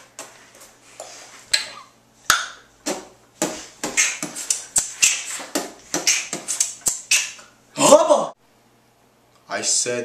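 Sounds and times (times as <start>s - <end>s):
tongue clicks: 6.1s - 7.5s.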